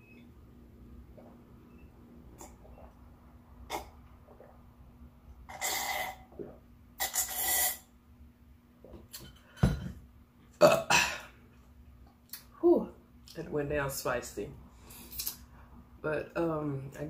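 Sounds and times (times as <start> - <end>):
person coughing throatily: 10.6 - 11.3.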